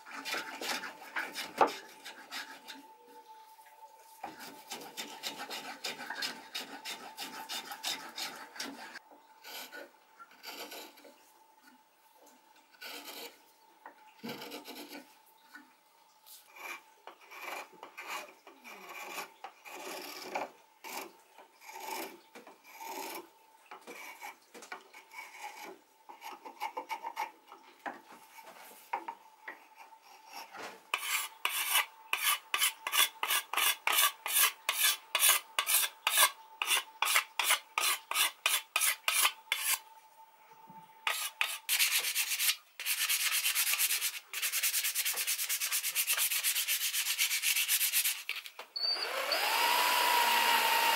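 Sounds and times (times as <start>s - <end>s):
sandpaper rubbing wood: 31.0s - 39.8s, 41.1s - 48.4s
spokeshave cutting wood: 31.0s - 39.8s, 49.0s - 50.9s.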